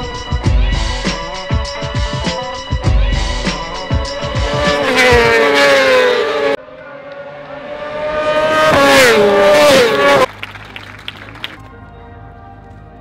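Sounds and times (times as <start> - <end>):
motorcycle approaching and passing: 3.6 - 10.3
racing motorcycles passing by: 4.0 - 10.3.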